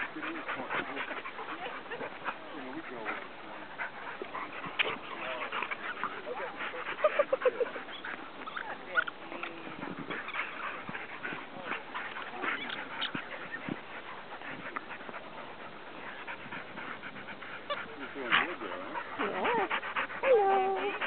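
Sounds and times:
dogs vocalizing: 0.0s - 21.0s
dog breathing: 9.8s - 21.0s.

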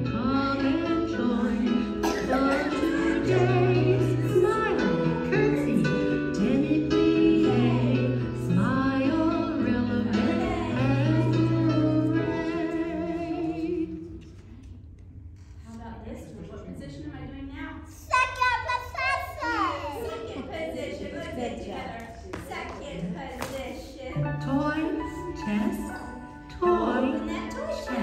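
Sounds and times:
woman singing: 0.0s - 14.1s, 22.4s - 28.0s.

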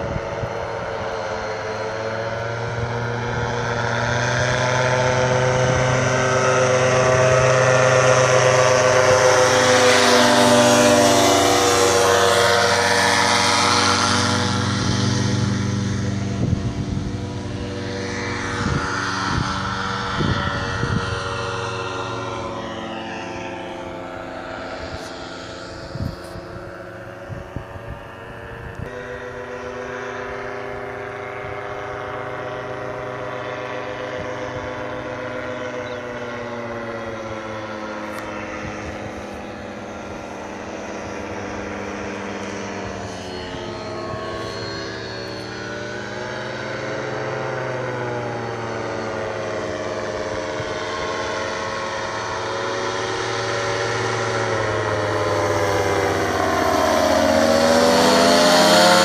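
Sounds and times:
paramotor engine droning overhead: 0.0s - 59.0s.

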